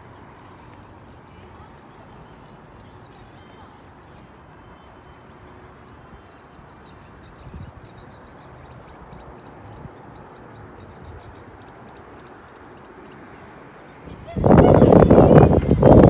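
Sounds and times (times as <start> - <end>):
small birds chirping: 0.0 - 16.0
wind buffeting microphone: 7.2 - 11.9, 14.0 - 16.0.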